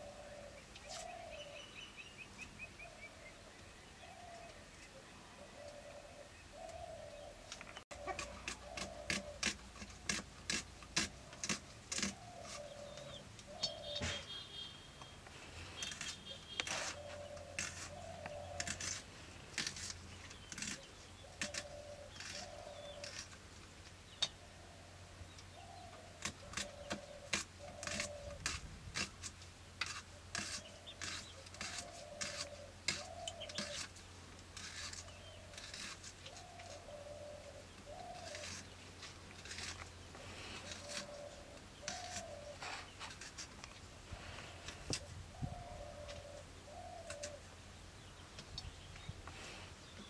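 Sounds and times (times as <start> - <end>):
dove cooing: 0.0 - 1.6, 5.3 - 9.6, 11.9 - 14.6, 15.8 - 19.0, 20.6 - 23.2, 25.6 - 28.5, 30.4 - 33.8, 35.4 - 38.8, 40.2 - 43.0, 44.5 - 47.4
cutting and scraping on blade: 7.9 - 14.4, 15.6 - 23.4, 26.2 - 36.9, 37.9 - 43.7.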